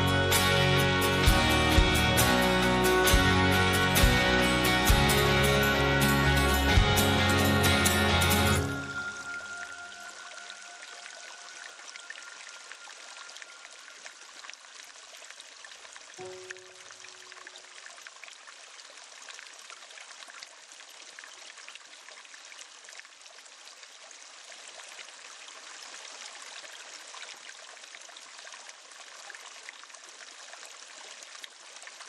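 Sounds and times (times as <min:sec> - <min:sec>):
water trickling and splashing: 0:08.6 - 0:32.0.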